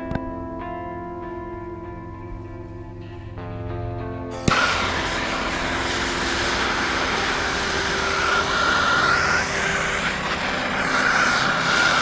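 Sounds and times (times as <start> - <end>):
thin whine: 4.3 - 12.0
air hissing through exhaust: 4.4 - 12.0.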